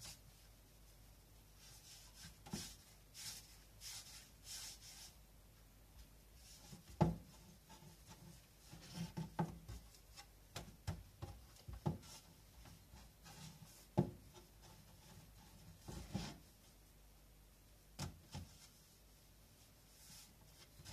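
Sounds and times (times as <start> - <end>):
hands rubbing dough on board: 0.0 - 5.2.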